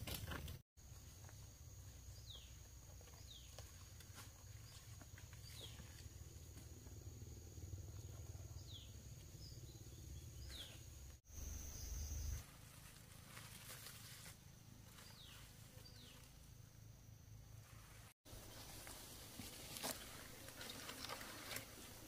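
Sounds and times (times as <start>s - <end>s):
insect high-pitched drone: 4.4s - 12.5s.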